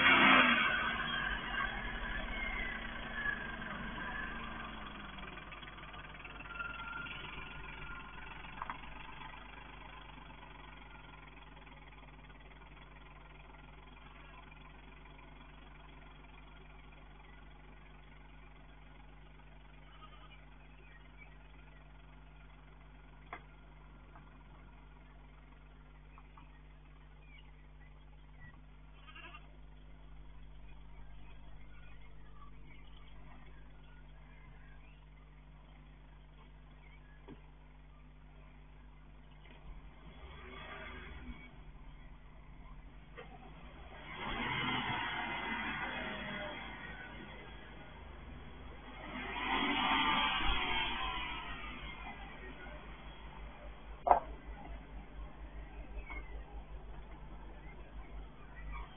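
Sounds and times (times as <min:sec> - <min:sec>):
car engine running: 0:00.0 - 0:58.9.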